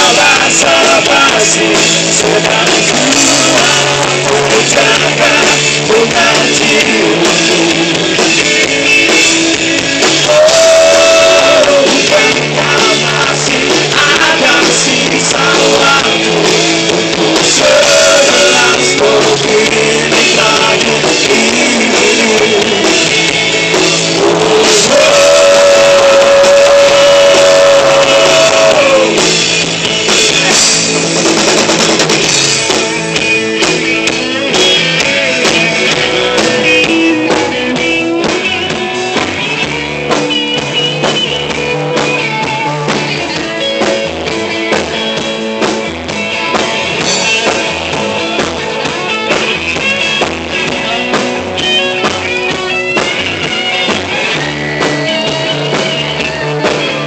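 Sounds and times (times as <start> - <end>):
person singing: 0.0 - 29.4
bass guitar: 0.0 - 57.0
drum kit: 0.0 - 57.0
electric guitars: 0.0 - 57.0.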